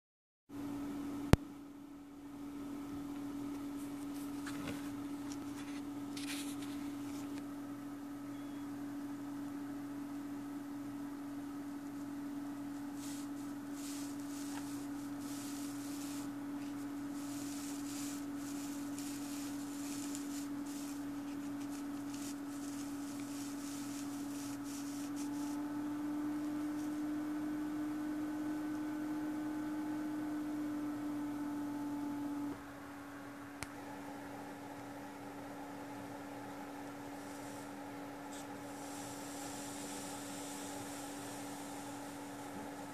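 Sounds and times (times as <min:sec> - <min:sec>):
steady low hum: 0:00.5 - 0:42.9
circuit board rubbing on mouse mat: 0:12.8 - 0:25.6, 0:37.1 - 0:42.9.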